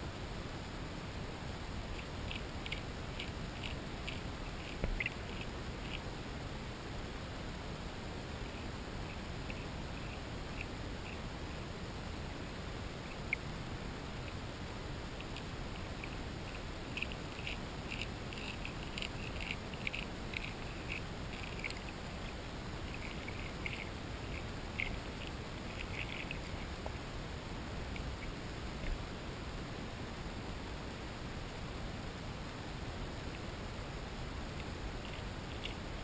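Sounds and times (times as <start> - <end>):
fish crunching food underwater: 2.0 - 6.1, 15.2 - 26.7.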